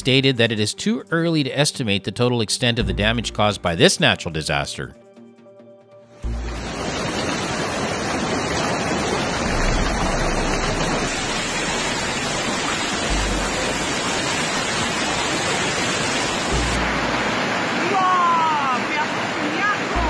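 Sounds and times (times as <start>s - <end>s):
hail and rain on cars and pavement: 6.6s - 16.7s.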